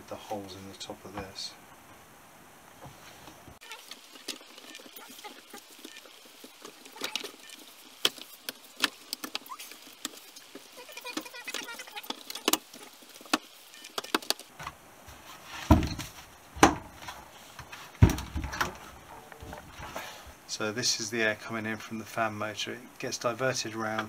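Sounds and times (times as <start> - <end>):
plastic parts clicking together: 6.9 - 14.5
loud thumps: 18.0 - 20.0.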